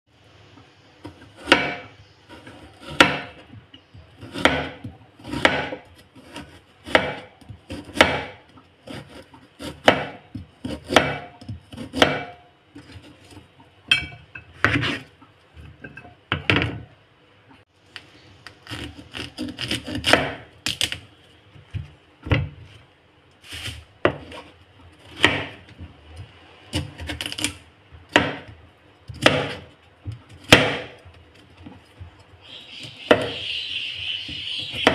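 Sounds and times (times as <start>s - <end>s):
knife chopping on cutting board: 1.1s - 3.4s, 4.2s - 13.0s, 18.7s - 20.8s, 25.0s - 25.6s, 28.1s - 28.5s, 29.1s - 31.0s.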